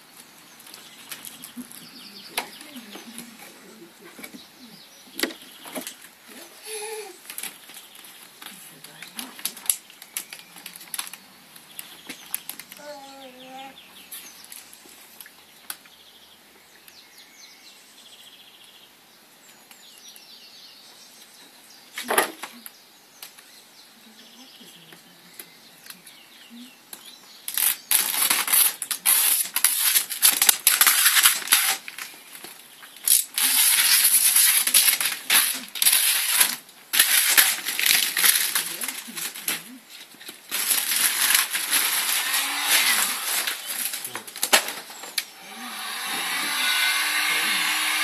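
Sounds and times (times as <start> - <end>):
vinyl film crinkling: 7.2 - 12.8, 27.5 - 45.3.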